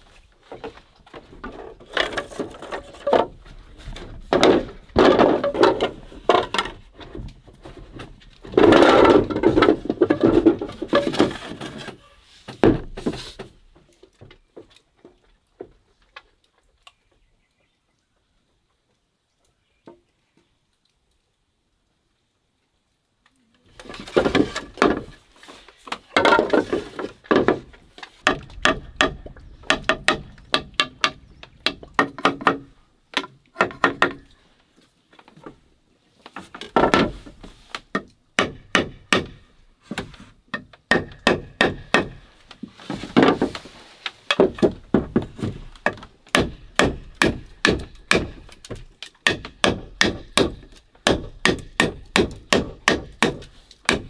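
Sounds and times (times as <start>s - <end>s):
bamboo clattering: 0.0s - 17.3s, 23.5s - 54.0s
knife chopping bamboo: 40.9s - 42.2s, 46.3s - 48.4s, 49.2s - 54.0s.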